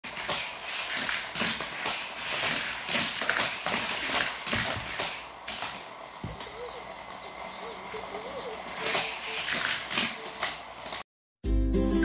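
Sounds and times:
toy cars clicking on plastic track: 0.0s - 6.6s, 8.2s - 11.0s.

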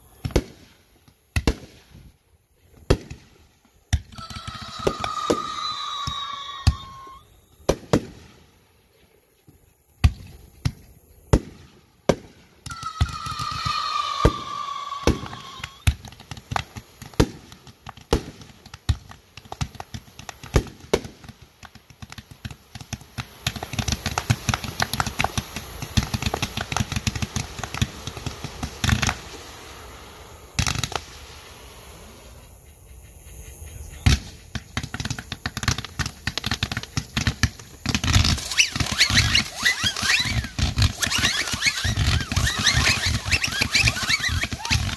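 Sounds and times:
fireworks bangs: 0.0s - 8.6s, 10.0s - 32.6s, 33.9s - 44.9s
rapid firework crackling: 0.0s - 8.6s, 10.0s - 32.6s, 33.3s - 44.9s
falling firework whistle: 3.9s - 8.1s, 11.4s - 17.6s, 23.2s - 44.9s.

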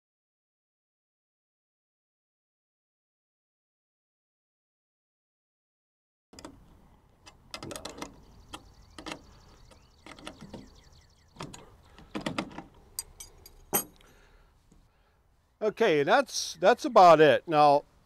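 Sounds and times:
metal hardware clinking: 11.4s - 14.1s.

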